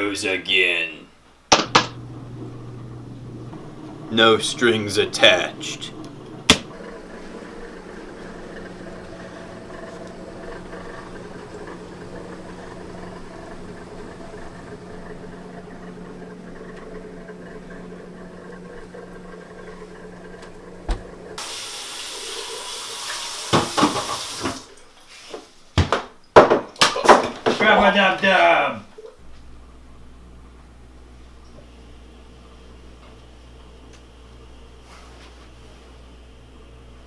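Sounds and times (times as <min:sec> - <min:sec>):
steady low hum: 0:00.8 - 0:21.4, 0:28.1 - 0:37.0
water running into steel sink: 0:21.4 - 0:24.9.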